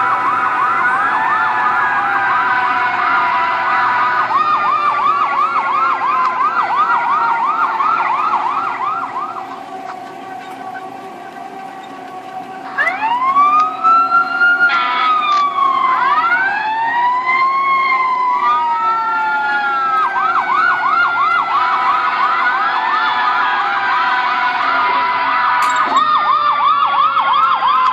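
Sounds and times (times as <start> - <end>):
fire truck siren from phone speaker: 0.0 - 27.9.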